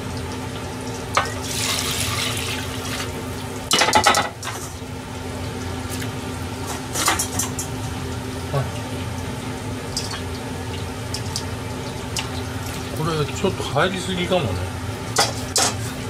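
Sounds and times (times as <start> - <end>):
liquid pouring and splashing: 0.0 - 3.3, 9.9 - 13.4
cookware clattering: 3.7 - 4.7, 15.2 - 15.8.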